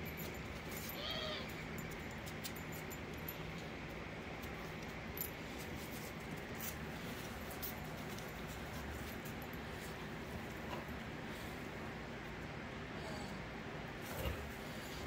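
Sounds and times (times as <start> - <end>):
dog whining: 0.9 - 1.6.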